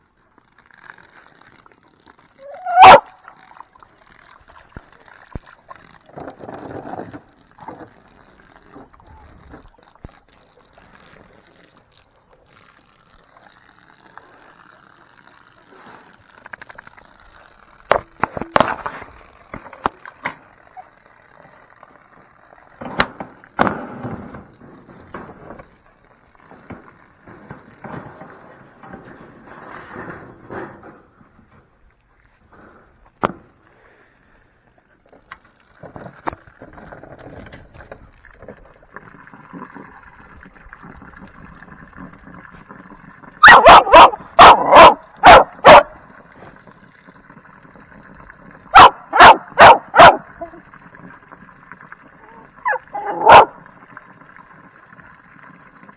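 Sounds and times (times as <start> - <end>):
garden hose spraying water: 0.0 - 6.2, 38.8 - 55.9
dogs barking: 2.7 - 3.1, 43.4 - 46.0, 48.8 - 50.3, 52.6 - 53.6.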